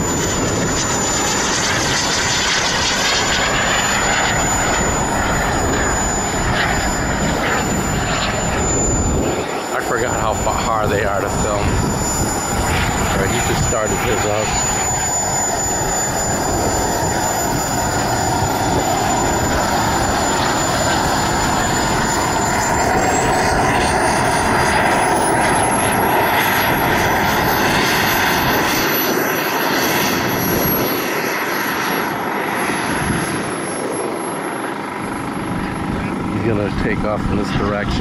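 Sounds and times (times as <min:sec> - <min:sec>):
model jet turbine whine: 0:00.0 - 0:38.0.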